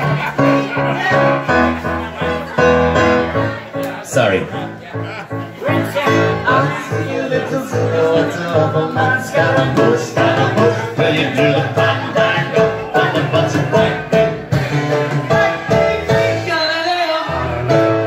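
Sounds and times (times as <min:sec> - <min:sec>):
grand piano: 0:00.0 - 0:18.0
drum kit beat: 0:07.8 - 0:18.0.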